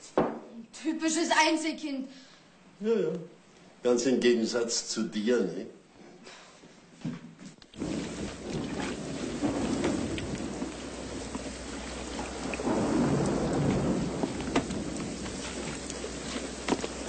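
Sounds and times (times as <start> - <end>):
heavy rain pouring: 7.8 - 17.0
thunder rumbling: 7.8 - 17.0.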